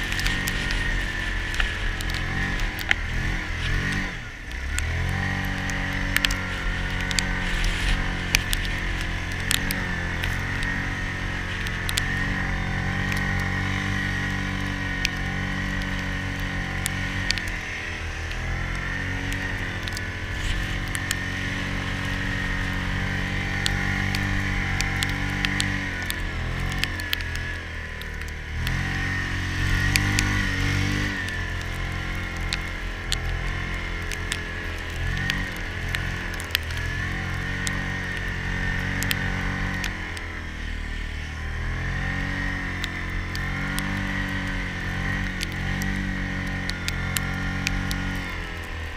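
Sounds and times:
sharp clicks: 0:00.0 - 0:12.4, 0:13.0 - 0:29.0, 0:29.6 - 0:40.4
atv engine running under load: 0:00.0 - 0:48.9.

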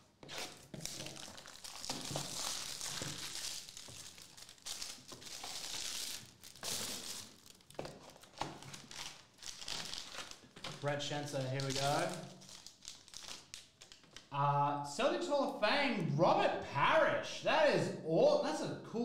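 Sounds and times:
plastic wrapping crinkling and tearing: 0:00.0 - 0:14.3.

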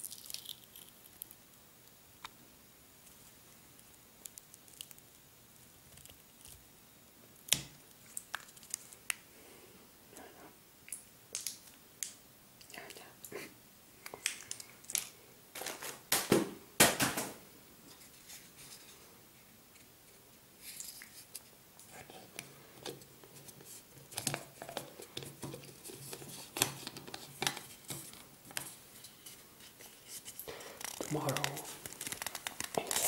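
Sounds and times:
plastic and paper crinkling: 0:15.0 - 0:16.3, 0:22.9 - 0:33.0.

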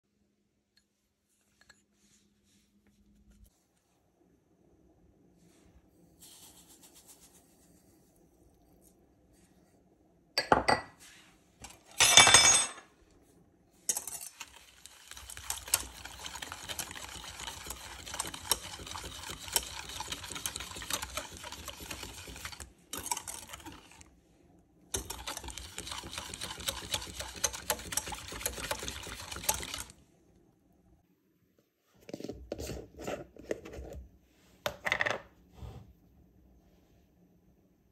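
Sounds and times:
sugar pouring: 0:13.9 - 0:24.1, 0:25.0 - 0:30.0
whisk scraping a metal pan: 0:13.9 - 0:24.1, 0:25.0 - 0:29.9.

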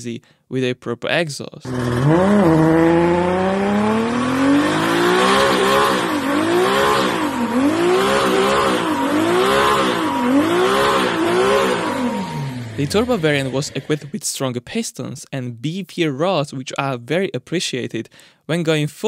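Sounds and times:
diesel engine revving hard: 0:01.7 - 0:14.1.

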